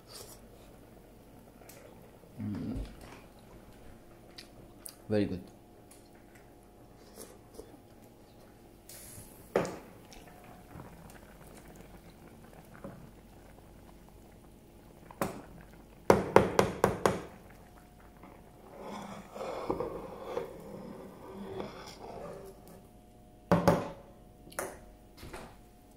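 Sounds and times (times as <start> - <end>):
soup bubbling in a pot: 7.8 - 22.8
wooden spoon knocking on pot: 16.1 - 17.3.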